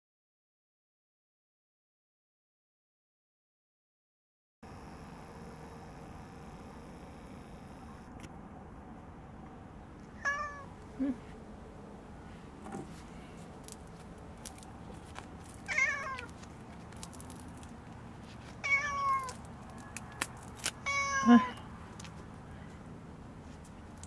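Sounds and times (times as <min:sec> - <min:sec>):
cat meowing: 0:10.2 - 0:10.7, 0:15.7 - 0:16.3, 0:18.6 - 0:19.4, 0:20.8 - 0:21.6.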